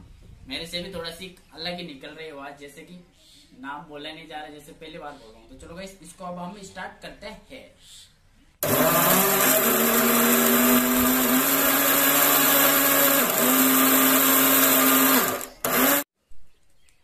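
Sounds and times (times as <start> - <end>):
mixer grinder motor whine: 8.6 - 16.1.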